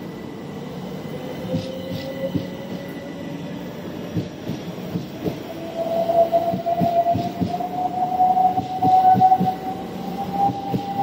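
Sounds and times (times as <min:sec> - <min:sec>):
faint electric train whine: 0:00.0 - 0:11.0
train wheels clicking over rail joints: 0:01.4 - 0:02.9, 0:04.1 - 0:05.5, 0:06.4 - 0:07.7, 0:10.3 - 0:11.0.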